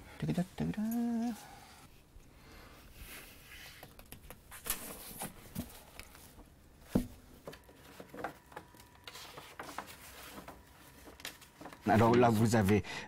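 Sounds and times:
paper rustling: 0:07.4 - 0:12.8.

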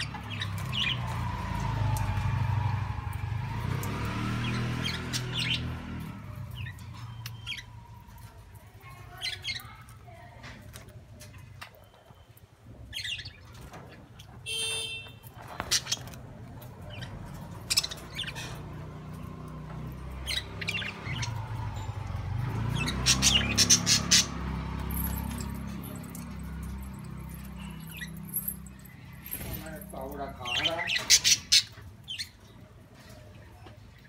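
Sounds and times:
budgerigars chirping and squawking: 0:00.0 - 0:01.2, 0:03.8 - 0:07.8, 0:12.9 - 0:14.8, 0:15.4 - 0:33.7.

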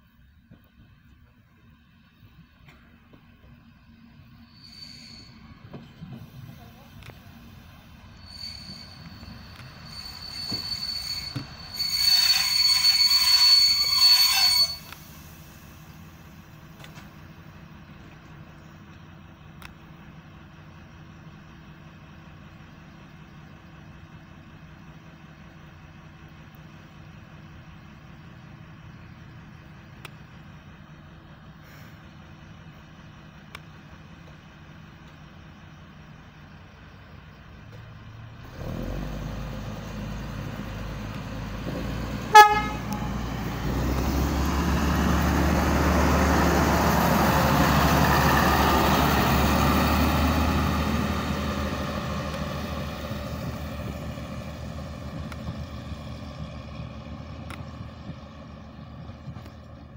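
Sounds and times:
diesel engine idling: 0:00.0 - 0:12.0, 0:14.8 - 0:59.9
high-pitched brake squeal: 0:04.3 - 0:06.8, 0:07.7 - 0:15.9.

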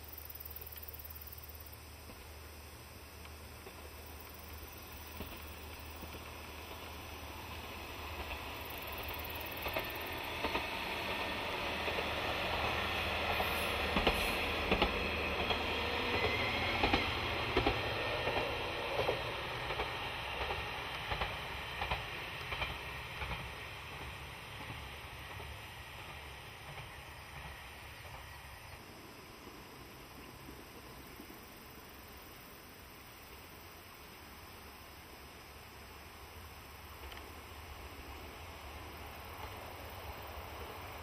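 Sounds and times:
train wheels clacking over joints: 0:08.1 - 0:28.4.

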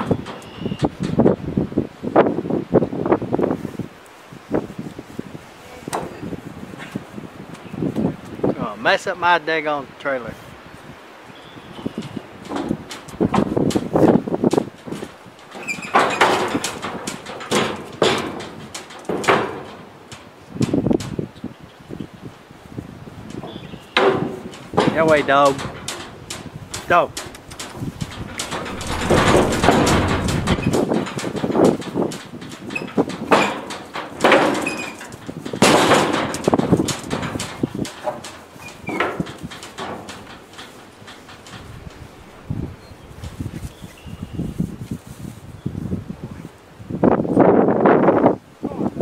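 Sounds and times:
horse hooves banging on metal floor: 0:14.9 - 0:21.2, 0:24.0 - 0:42.6
hooves on metal trailer floor: 0:31.7 - 0:43.8.

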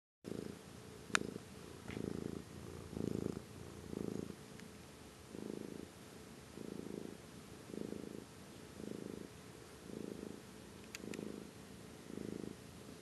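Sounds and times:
cat purring: 0:00.3 - 0:13.0
sharp click: 0:10.8 - 0:11.2.

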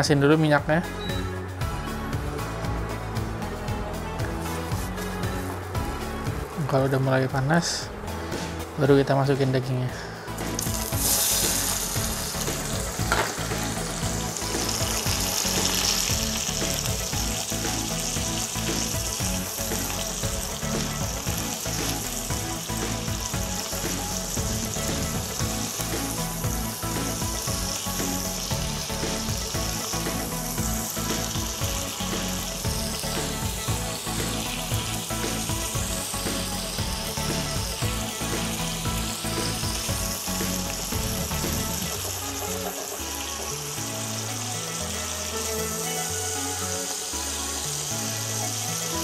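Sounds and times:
beef sizzling in oil: 0:10.3 - 0:49.0.

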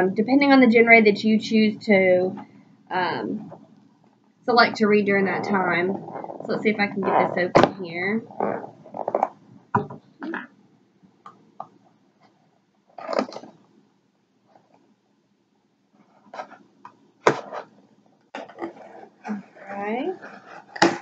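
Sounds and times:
cardboard rustling and scraping: 0:05.2 - 0:07.5, 0:17.2 - 0:17.8, 0:18.4 - 0:21.0.

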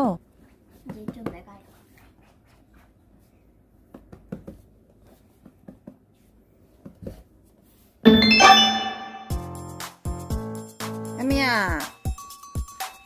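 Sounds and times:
bright music jingle: 0:08.1 - 0:09.6.

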